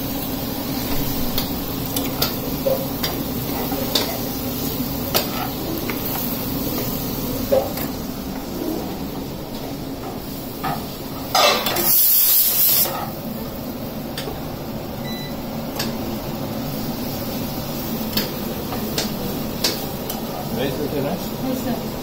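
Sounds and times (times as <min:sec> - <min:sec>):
spatula clicking against pans: 0:01.4 - 0:04.2, 0:05.0 - 0:07.9, 0:15.7 - 0:16.0, 0:18.1 - 0:20.4
pressure cooker steam hiss: 0:10.2 - 0:14.0.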